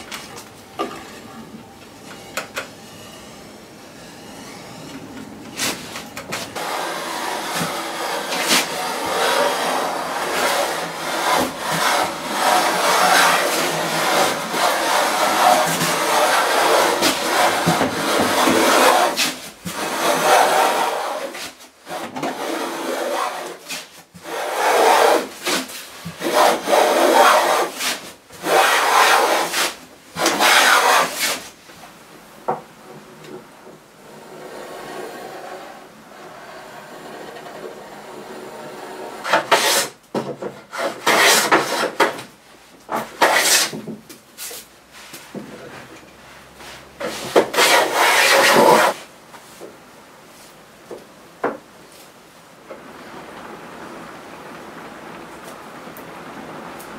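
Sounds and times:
hand plane shaving wood: 6.6s - 31.4s, 34.3s - 40.0s, 40.7s - 42.2s, 42.9s - 43.8s, 47.0s - 49.0s.

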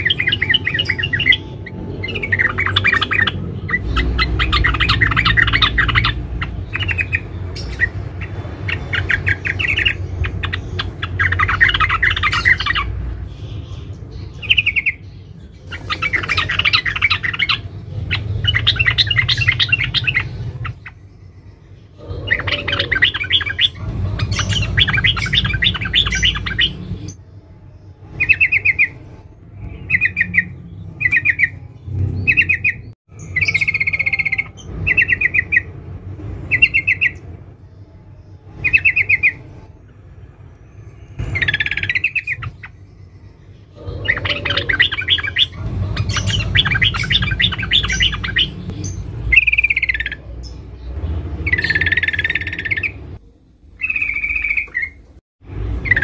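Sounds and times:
bird twittering chatter: 0.0s - 27.2s, 41.1s - 53.2s, 53.8s - 55.1s.

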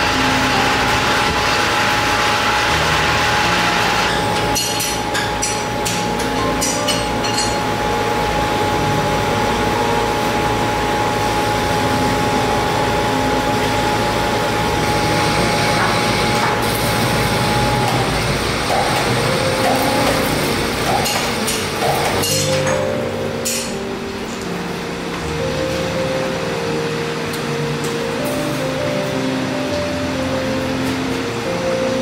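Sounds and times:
lathe whine: 0.0s - 22.3s
metal lathe running: 0.0s - 32.0s.

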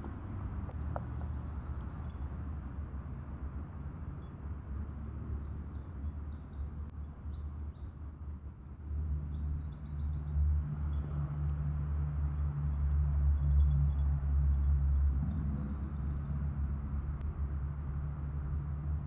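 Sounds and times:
songbirds chirping: 0.0s - 3.4s, 5.0s - 8.1s, 8.7s - 11.4s, 13.4s - 17.8s.

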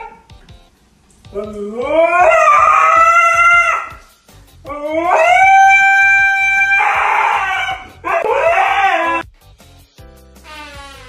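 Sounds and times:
dog howling: 0.0s - 0.3s, 1.3s - 4.0s, 4.7s - 9.2s.

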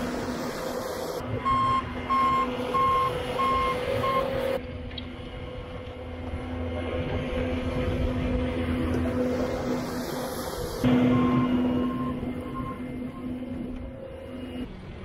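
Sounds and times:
loader engine running: 0.0s - 15.0s
backup alarm beeping: 1.4s - 4.4s, 10.9s - 14.6s.

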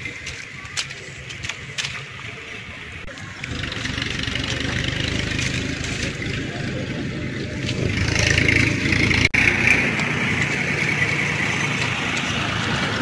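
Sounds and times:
motor engine running: 3.1s - 13.0s.

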